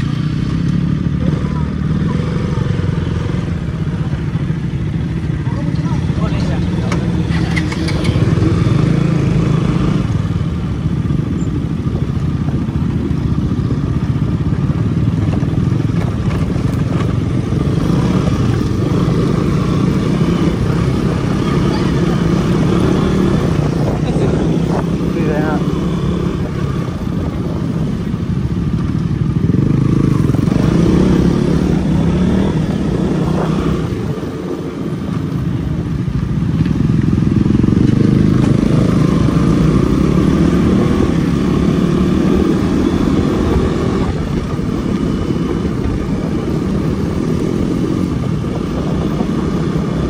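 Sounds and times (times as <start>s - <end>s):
motorcycle engine running: 0.0s - 50.0s.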